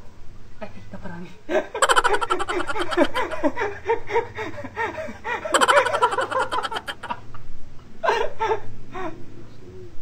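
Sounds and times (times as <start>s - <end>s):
man laughing: 1.8s - 7.2s.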